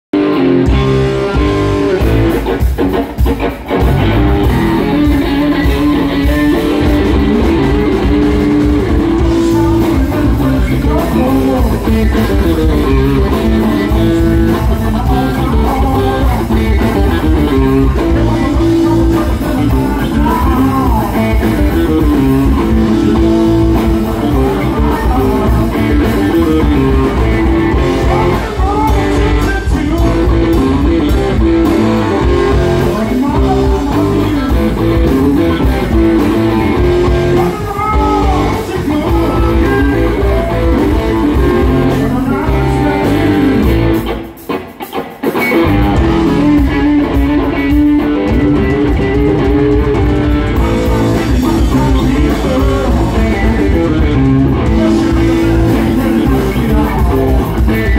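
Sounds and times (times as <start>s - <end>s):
bass guitar: 0.0s - 57.9s
drums: 0.0s - 57.9s
electric guitar leading: 0.2s - 57.9s.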